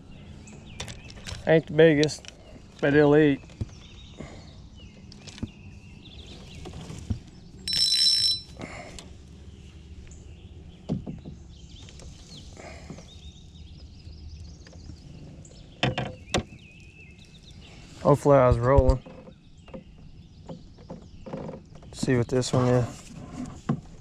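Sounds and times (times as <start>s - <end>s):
knocks and clicks in a kayak: 10.8s - 12.2s, 15.7s - 16.7s, 18.6s - 22.6s.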